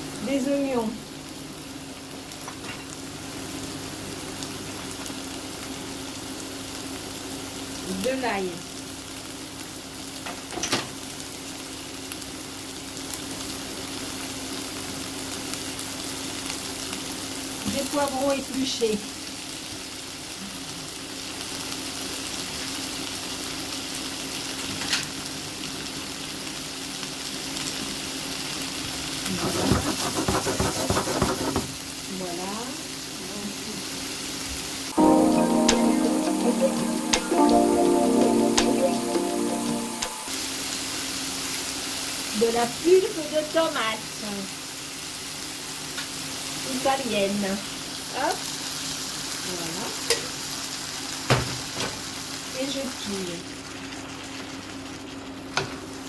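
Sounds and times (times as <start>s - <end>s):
onions sizzling in oil: 0.0s - 30.1s, 31.0s - 56.0s
utensil scraping a pan: 29.3s - 31.7s.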